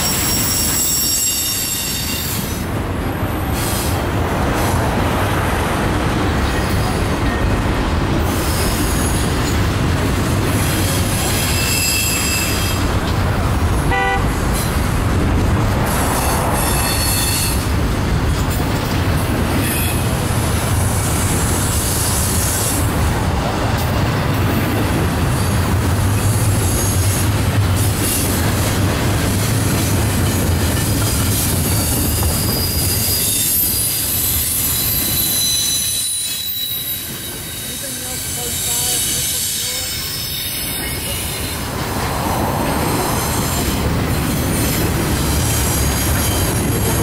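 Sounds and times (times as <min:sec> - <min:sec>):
high-pitched wheel squeal: 0:00.0 - 0:02.6, 0:10.9 - 0:12.8, 0:16.1 - 0:17.7, 0:31.7 - 0:41.6
train cars rumbling on rails: 0:00.0 - 0:47.0.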